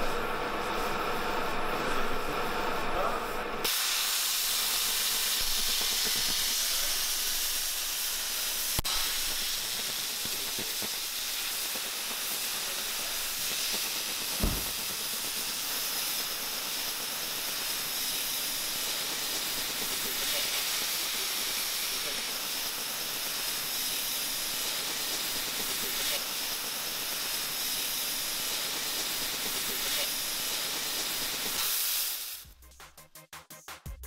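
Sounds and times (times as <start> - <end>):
cutting torch hissing: 3.6 - 32.4
short thump: 14.4 - 14.9.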